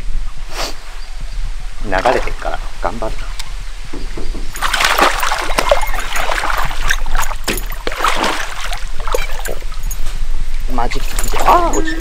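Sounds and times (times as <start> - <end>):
water splashing and sloshing: 1.8 - 12.0.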